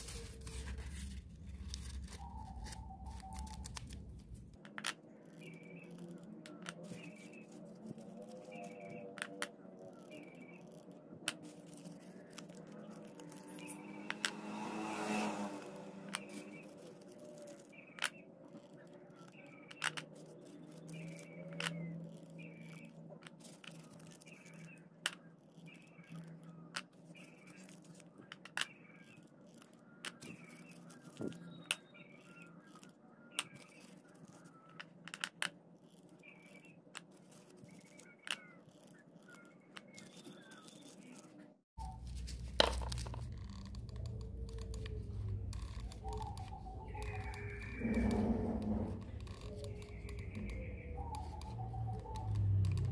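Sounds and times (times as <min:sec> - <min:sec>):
paper rustling and crinkling: 0:00.0 - 0:04.6, 0:05.4 - 0:13.7, 0:16.1 - 0:24.8, 0:35.9 - 0:52.9.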